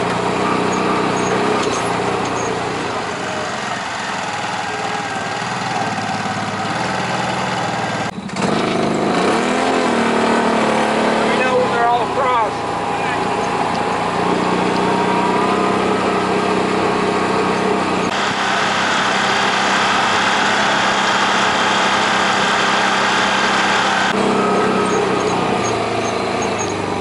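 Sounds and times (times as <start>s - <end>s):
utv engine running: 0.0s - 27.0s
loud rushing noise: 12.4s - 24.9s.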